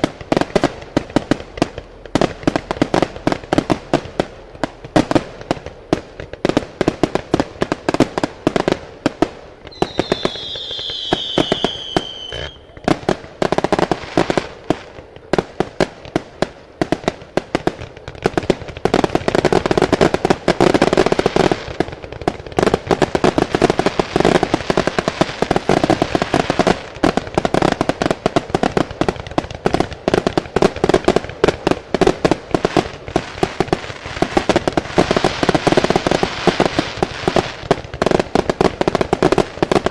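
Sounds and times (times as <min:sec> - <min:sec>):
fireworks bangs and crackling: 0:00.0 - 0:39.9
falling firework whistle: 0:09.6 - 0:13.0.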